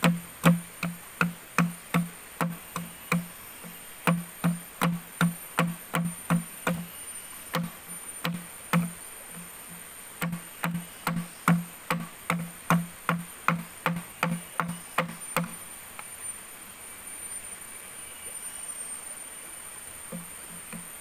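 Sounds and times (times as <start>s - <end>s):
sharp hollow knocks: 0.0s - 6.9s, 7.5s - 9.5s, 10.2s - 15.6s
steady high-pitched hum: 0.0s - 21.0s.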